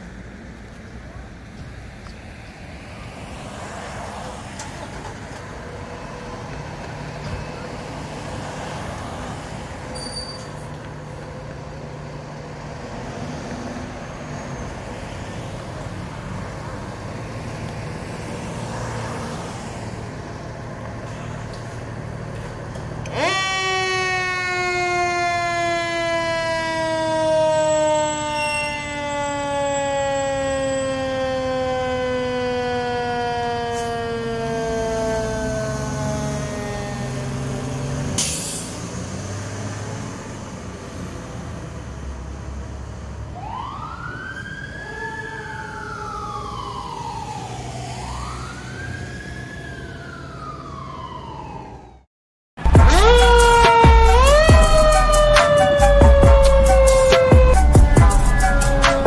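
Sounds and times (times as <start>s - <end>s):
siren rising and falling: 23.0s - 38.2s, 43.2s - 59.0s.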